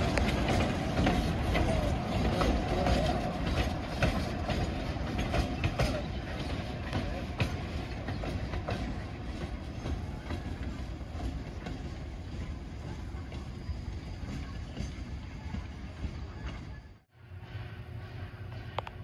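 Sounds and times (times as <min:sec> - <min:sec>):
train rumble: 0:00.0 - 0:19.0
train wheels clicking on rails: 0:00.0 - 0:19.0.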